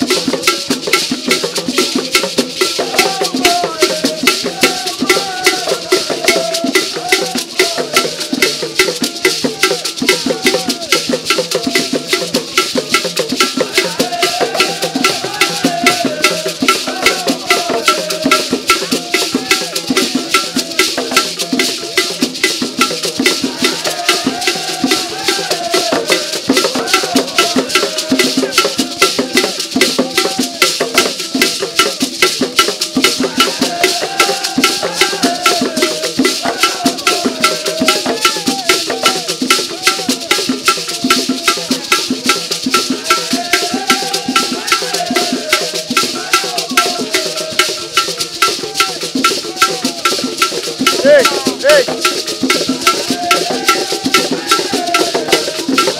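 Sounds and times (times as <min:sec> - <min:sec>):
hand drums: 0:00.0 - 0:55.9
gourd rattles: 0:50.3 - 0:54.9.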